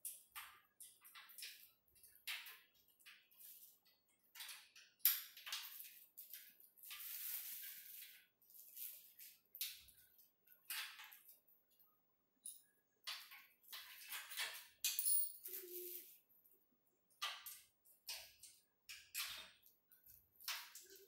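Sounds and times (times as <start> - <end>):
plastic wrap crinkling: 5.7 - 9.4.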